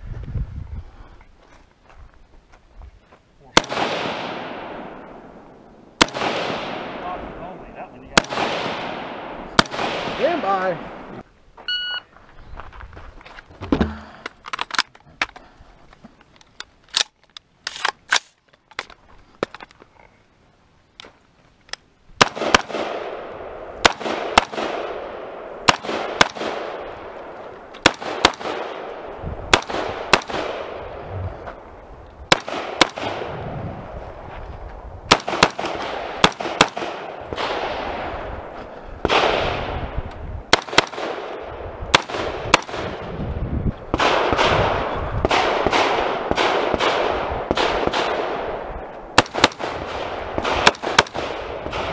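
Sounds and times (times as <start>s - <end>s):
rifle shots echoing: 3.6s - 11.2s, 22.2s - 31.0s, 32.3s - 33.4s, 35.1s - 43.2s, 43.9s - 51.9s.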